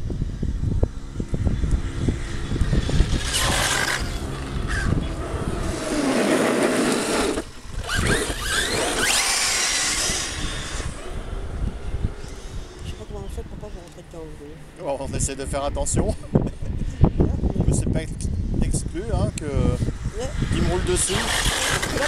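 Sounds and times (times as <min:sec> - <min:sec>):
wind buffeting microphone: 0:00.0 - 0:22.0
toy truck motor whine: 0:01.9 - 0:12.9, 0:21.0 - 0:22.0.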